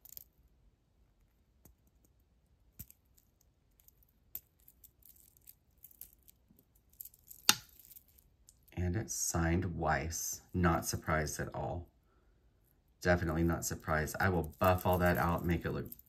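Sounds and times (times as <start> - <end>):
jewelry clicking and clinking: 0.0 - 0.5, 1.2 - 8.7, 14.3 - 16.0.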